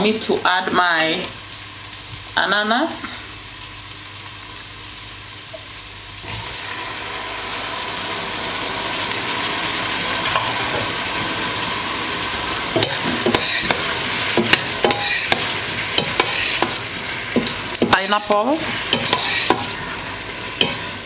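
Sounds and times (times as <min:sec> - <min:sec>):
vegetables sizzling in oil: 0:00.0 - 0:21.0
spoon scraping metal pot: 0:12.8 - 0:16.8, 0:18.9 - 0:19.8.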